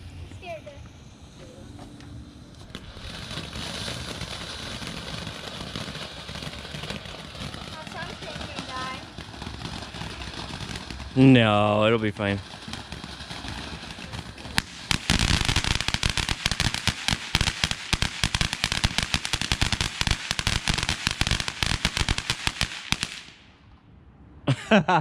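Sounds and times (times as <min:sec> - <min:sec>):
firework fountain hissing and crackling: 0:00.0 - 0:01.5, 0:02.2 - 0:23.5.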